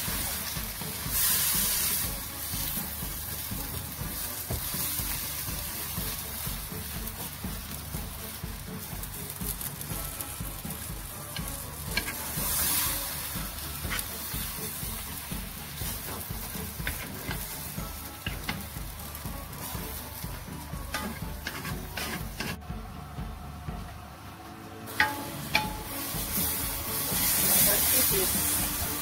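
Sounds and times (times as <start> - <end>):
food sizzling in a wok: 0.0 - 29.0
spatula knocking on pan: 4.4 - 4.8.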